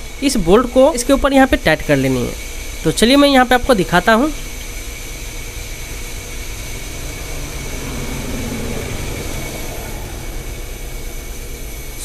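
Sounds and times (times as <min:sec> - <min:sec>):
mechanical hum and hiss: 0:00.0 - 0:12.0.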